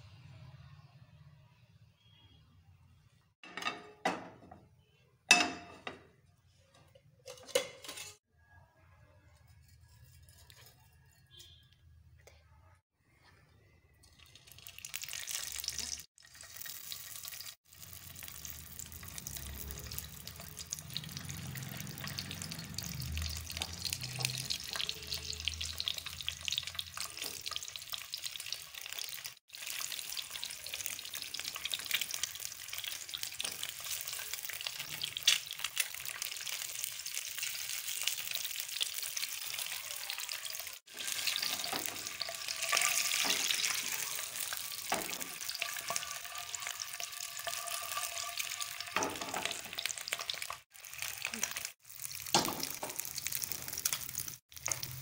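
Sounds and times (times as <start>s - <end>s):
oil sizzling in frying pan: 14.0s - 55.0s.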